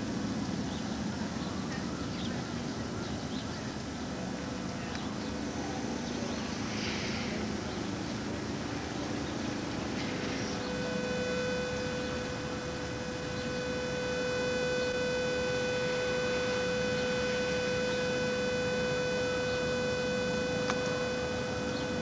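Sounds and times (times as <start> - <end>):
background hiss: 0.0 - 22.0
steady electronic tone: 5.2 - 22.0.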